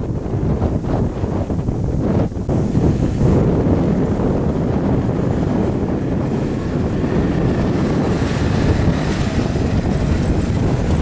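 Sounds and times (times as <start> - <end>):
wind buffeting microphone: 0.0 - 11.0
suv engines driving by: 5.1 - 11.0.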